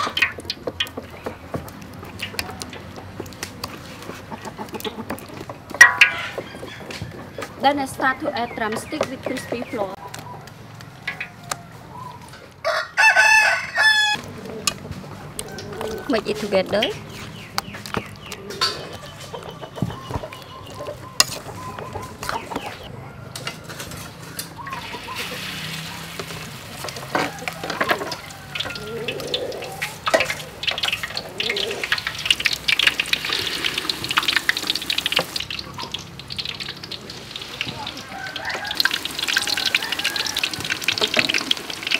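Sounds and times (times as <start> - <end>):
rooster crowing: 10.4 - 14.2, 15.1 - 16.4, 27.0 - 30.0, 37.6 - 41.5
chicken sizzling in hot oil: 24.6 - 41.9.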